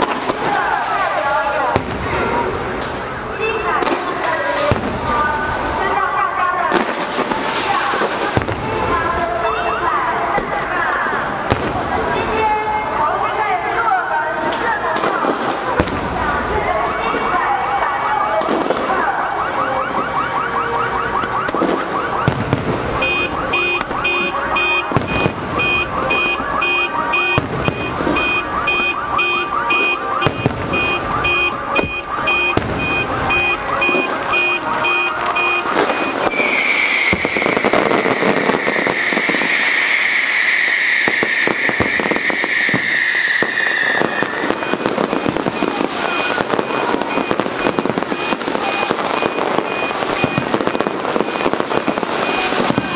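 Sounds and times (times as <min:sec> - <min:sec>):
fireworks crackling and popping: 0:00.0 - 0:52.9
long high alarm tone: 0:18.4 - 0:52.9
electronic alarm beeping: 0:23.0 - 0:37.8, 0:40.2 - 0:52.9.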